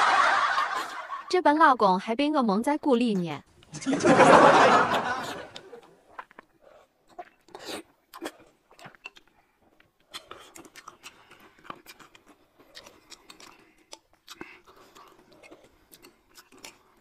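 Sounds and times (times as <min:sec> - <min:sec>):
quiet chewing: 0:05.1 - 0:17.0.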